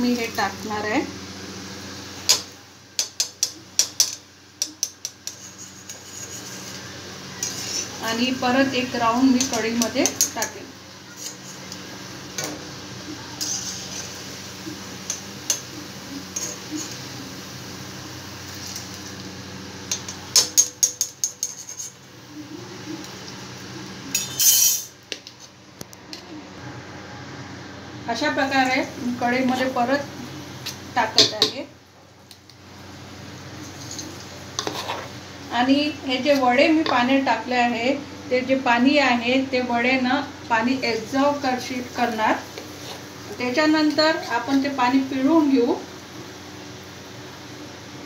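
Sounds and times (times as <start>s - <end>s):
frying oil hissing: 0.0s - 48.0s
spoon scraping steel pot: 5.0s - 6.8s, 7.4s - 8.0s, 13.4s - 14.1s, 20.8s - 22.0s, 33.6s - 35.2s
steel spoons clinking on pots: 24.1s - 24.9s.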